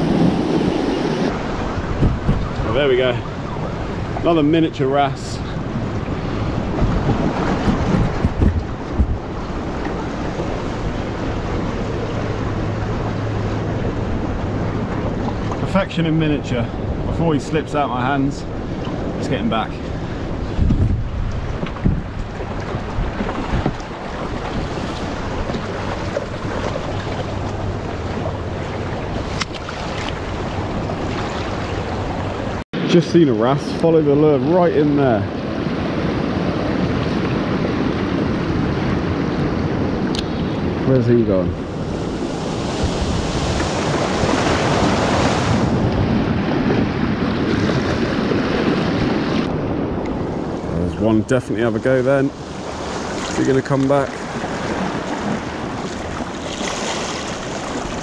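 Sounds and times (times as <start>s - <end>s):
surf washing over rocks: 0.0s - 58.0s
wind rumbling on microphone: 0.0s - 58.0s
water lapping against rocks: 19.8s - 32.6s, 52.4s - 58.0s.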